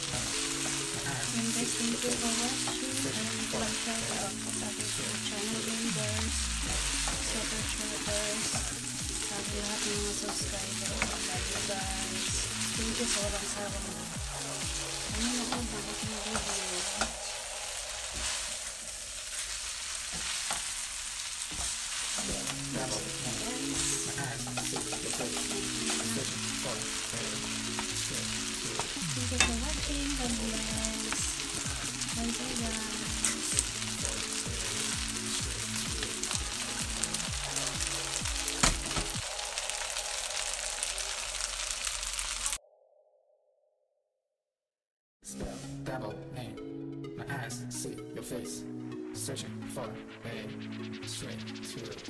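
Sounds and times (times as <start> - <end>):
wooden spatula stirring: 0.0 - 40.5
noodles sizzling in a wok: 0.0 - 42.6.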